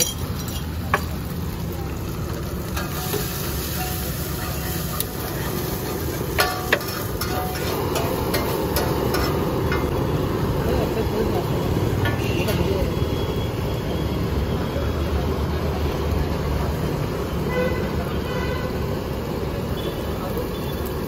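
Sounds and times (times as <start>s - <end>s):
egg sizzling on griddle: 0.0s - 12.3s
spatula scraping griddle: 2.7s - 9.9s
spatula clinking on pan: 6.3s - 9.9s.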